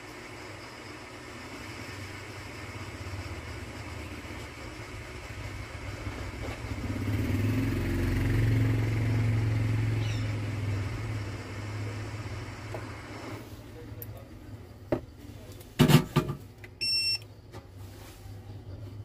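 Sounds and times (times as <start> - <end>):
hot air gun fan hum with hiss: 0.0 - 19.0.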